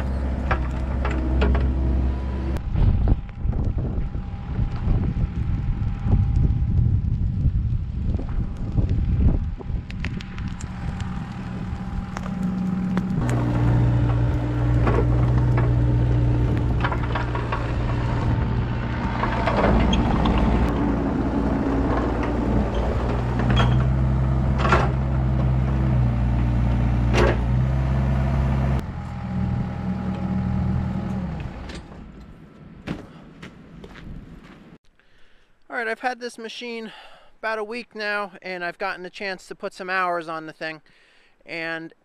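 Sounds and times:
excavator diesel engine running: 0:00.0 - 0:06.4, 0:10.2 - 0:31.7.

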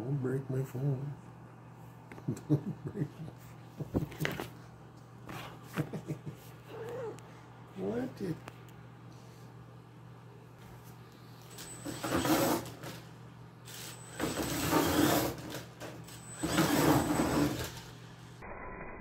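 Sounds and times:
electric motor whine: 0:13.7 - 0:17.9.

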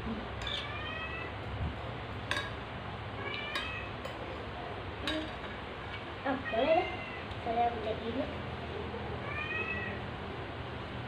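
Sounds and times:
spoons clinking on plates: 0:00.4 - 0:00.8, 0:02.2 - 0:02.6, 0:03.3 - 0:06.1
cat meowing: 0:09.2 - 0:10.0.

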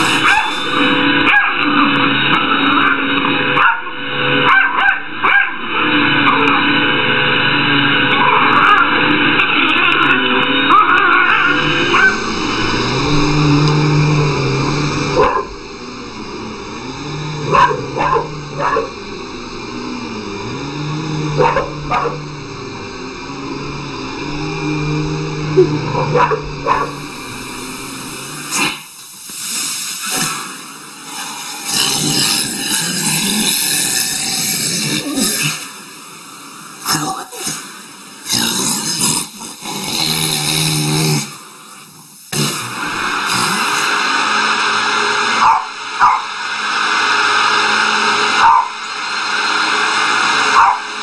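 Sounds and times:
vacuum cleaner motor hum: 0:00.0 - 0:51.0
small dog barking: 0:00.2 - 0:00.6, 0:01.2 - 0:01.6, 0:03.6 - 0:03.8, 0:04.4 - 0:05.6, 0:15.2 - 0:15.5, 0:17.5 - 0:18.9, 0:21.4 - 0:22.2, 0:25.9 - 0:27.0, 0:45.4 - 0:46.3, 0:48.4 - 0:48.8, 0:50.5 - 0:50.9.

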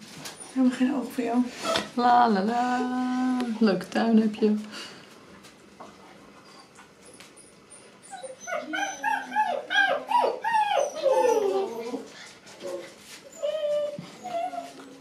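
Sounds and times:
puppy whining and yelping: 0:06.4 - 0:15.0.

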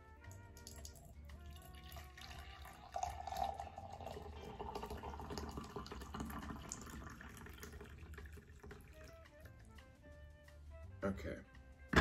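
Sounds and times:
coffee pouring into mug: 0:00.4 - 0:09.7.

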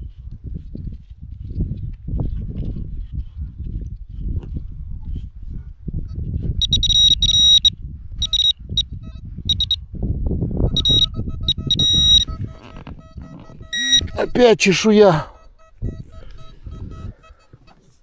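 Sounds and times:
metal detector beeping: 0:06.6 - 0:08.9, 0:09.5 - 0:09.8, 0:10.7 - 0:17.6.

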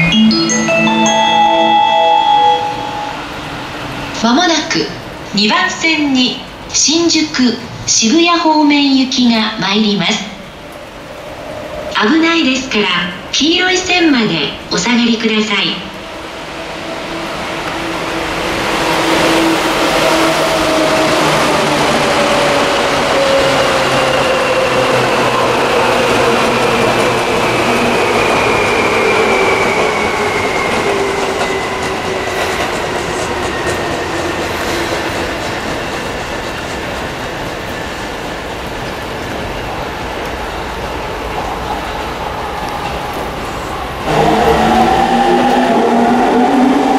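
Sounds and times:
train whine falling in pitch: 0:00.0 - 0:03.8, 0:43.8 - 0:46.9
train wheels clattering on rails: 0:17.6 - 0:46.2.

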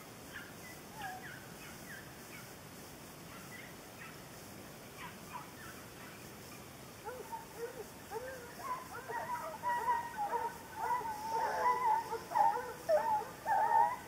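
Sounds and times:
hounds yelping and baying: 0:07.0 - 0:14.0.

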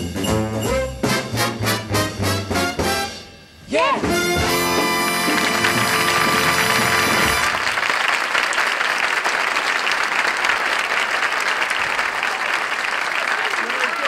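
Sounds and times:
brass band final chord: 0:01.0 - 0:03.4, 0:04.1 - 0:07.6
audience applauding: 0:04.4 - 0:14.0.

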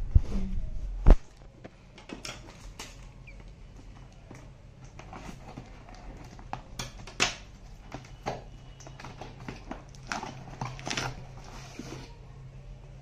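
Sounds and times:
cardboard scraping and rustling: 0:04.9 - 0:12.2.

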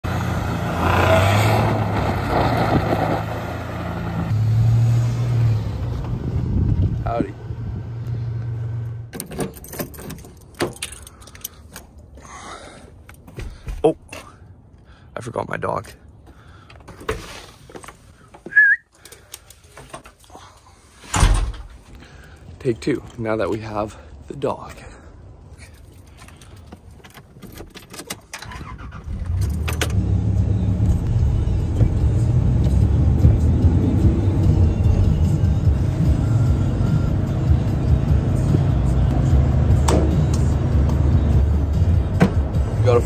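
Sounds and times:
tires churning through snow: 0:00.0 - 0:08.3
pickup engine revving: 0:00.1 - 0:06.6
light knocks and footsteps: 0:10.7 - 0:14.4
person whistling for dog: 0:18.5 - 0:18.9.

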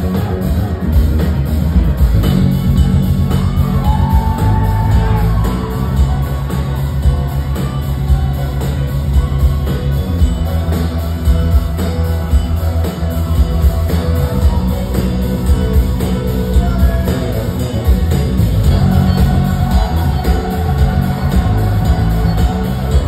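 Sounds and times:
electric bass line: 0:00.0 - 0:23.0
live funk band playing: 0:00.0 - 0:23.0.

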